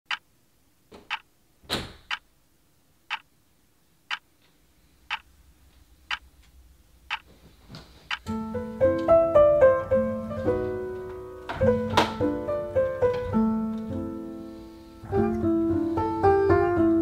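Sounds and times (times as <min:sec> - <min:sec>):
clock ticking: 0:00.1 - 0:00.3, 0:01.1 - 0:01.3, 0:03.1 - 0:03.3, 0:05.1 - 0:05.3, 0:07.1 - 0:07.3, 0:08.1 - 0:08.3.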